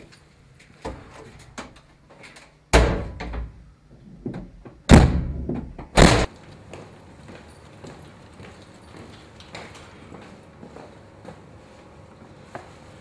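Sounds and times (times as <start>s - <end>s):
doors slamming shut: 2.7s - 3.6s, 4.3s - 6.3s.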